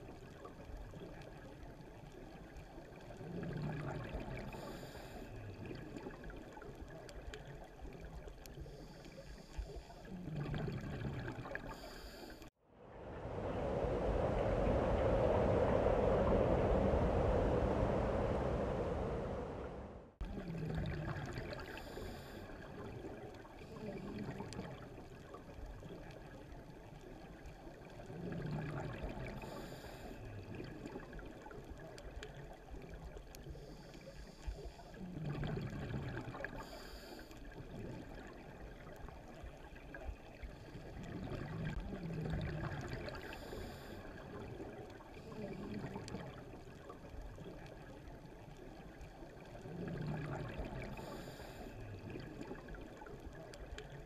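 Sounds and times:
exhaust bubbles rushing: 12.7s - 21.7s, 41.0s - 43.3s, 49.6s - 51.0s
diver breathing through regulator: 36.6s - 37.4s, 50.9s - 51.9s.

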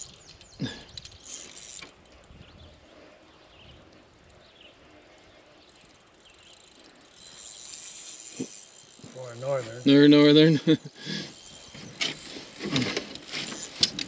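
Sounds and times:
spinning reel rasp: 0.0s - 2.0s, 5.6s - 14.0s.

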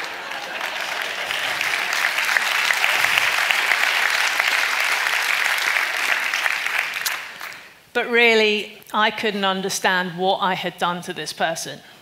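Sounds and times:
crowd clapping: 0.0s - 7.8s.

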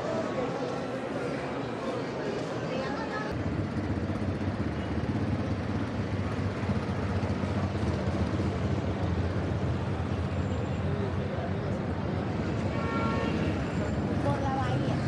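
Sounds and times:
car and motorcycle engines: 3.3s - 12.8s.

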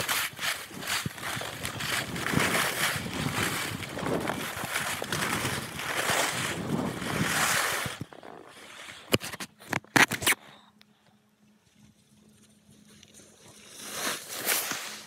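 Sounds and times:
rushing wind: 0.0s - 8.2s
skis sliding over snow: 0.0s - 9.3s, 13.1s - 15.0s.

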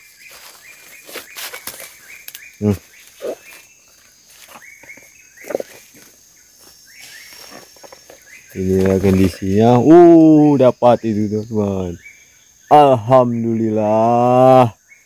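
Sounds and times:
footsteps through leaf litter: 0.0s - 2.2s
faint insect drone: 0.0s - 15.0s.

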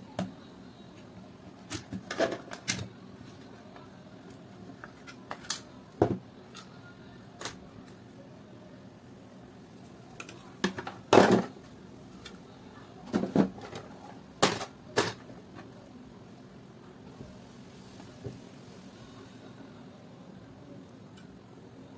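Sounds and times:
plastic clatter: 1.7s - 2.9s.

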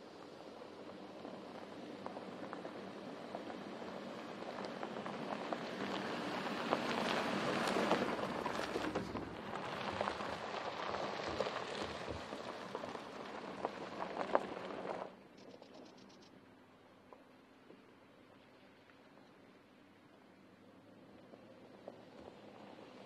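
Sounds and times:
tyres rolling over gravel: 0.3s - 15.2s, 20.9s - 23.0s.

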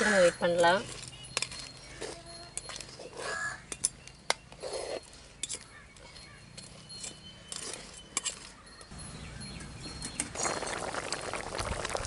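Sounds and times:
metal spoon clinking against pot: 0.0s - 10.6s
curry bubbling at a boil: 10.3s - 12.0s.

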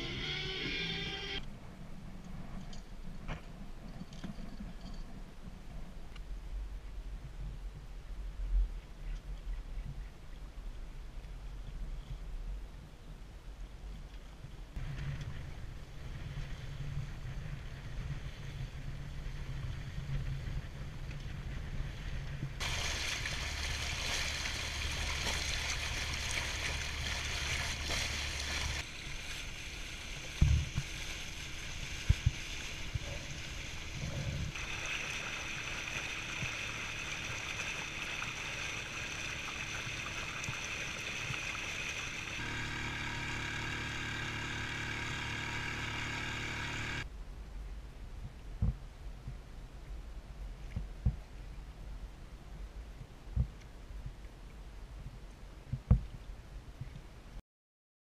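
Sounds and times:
wind: 0.0s - 57.4s
water rushing along boat hull: 22.6s - 42.7s
small boat engine running: 22.6s - 47.0s.

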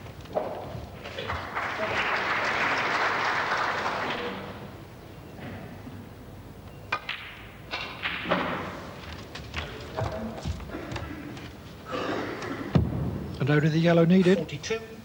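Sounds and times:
audience applause: 0.9s - 4.8s.

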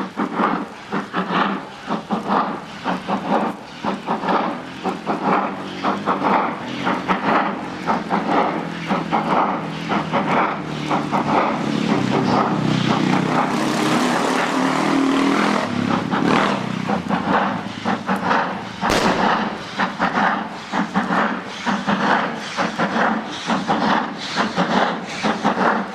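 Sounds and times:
rush of steam: 0.0s - 25.9s
steam locomotive exhaust beats: 0.0s - 25.9s
sharp crack: 18.8s - 20.0s.

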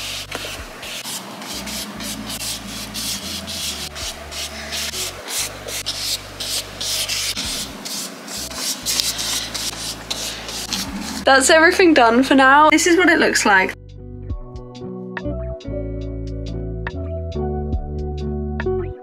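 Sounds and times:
paintbrush swishing on paper: 0.0s - 11.3s.

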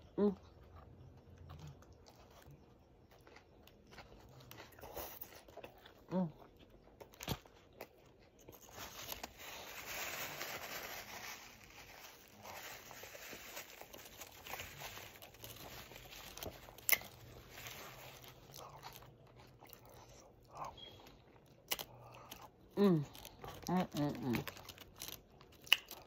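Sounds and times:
chewing and lip smacking: 0.4s - 8.6s, 18.2s - 26.0s.

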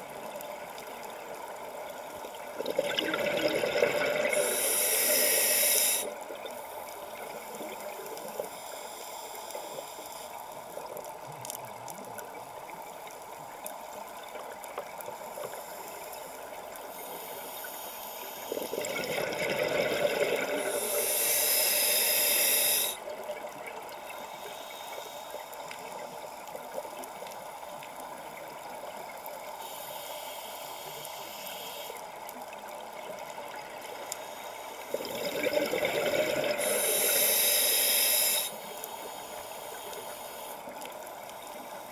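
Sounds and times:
steady background hiss: 3.4s - 41.9s
diver breathing through regulator: 3.8s - 6.2s, 16.9s - 23.0s, 36.0s - 40.6s.

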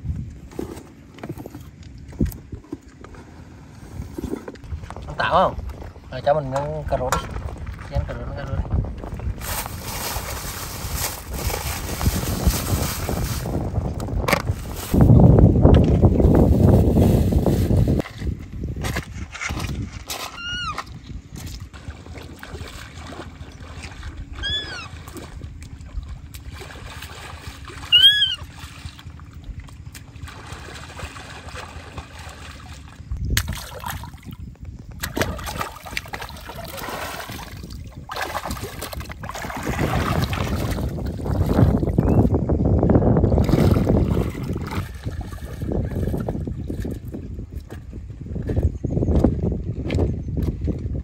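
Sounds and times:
feet wading through shallow river: 19.4s - 42.3s, 43.3s - 51.0s
high squeals: 24.4s - 25.0s, 27.9s - 28.4s.

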